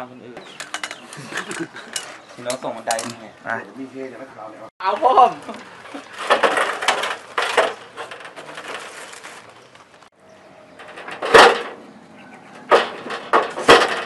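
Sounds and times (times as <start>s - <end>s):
metal ladder knocking on concrete: 5.9s - 9.0s, 10.8s - 11.8s, 12.6s - 14.0s.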